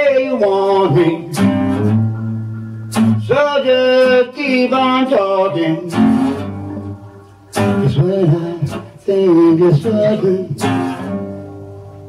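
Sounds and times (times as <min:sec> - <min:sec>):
man singing: 0:00.0 - 0:01.9, 0:03.1 - 0:06.5, 0:07.6 - 0:11.2
acoustic guitar strumming: 0:00.0 - 0:12.0.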